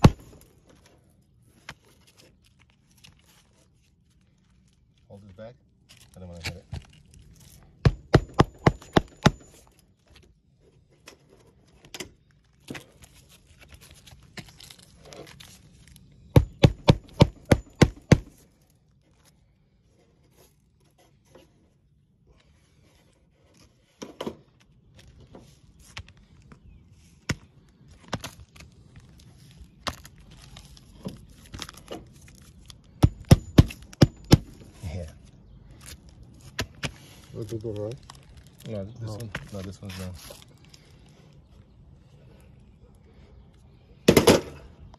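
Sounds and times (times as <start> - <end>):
hammer knocking on shingle roof: 7.9 - 9.4, 16.4 - 18.3.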